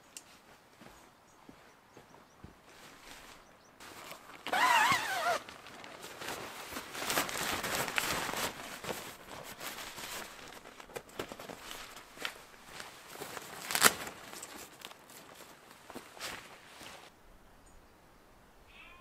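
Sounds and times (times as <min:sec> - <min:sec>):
nylon tent rustling: 0:02.7 - 0:17.1.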